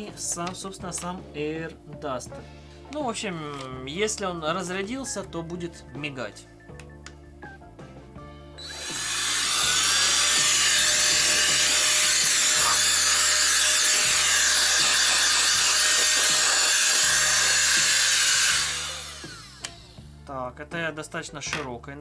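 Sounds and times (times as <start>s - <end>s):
air duster blowing: 8.6s - 20.1s.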